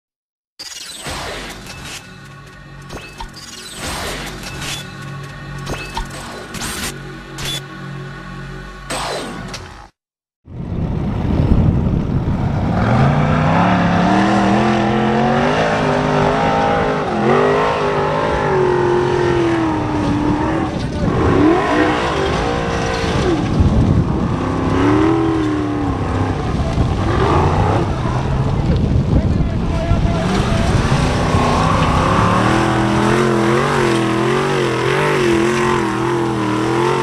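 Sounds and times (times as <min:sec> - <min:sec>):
buggy engine revving hard: 0:12.5 - 0:28.6, 0:30.1 - 0:37.0.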